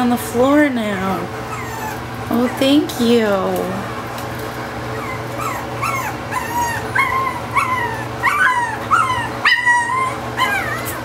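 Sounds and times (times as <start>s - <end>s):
puppy whining: 1.4s - 2.7s, 3.8s - 11.0s.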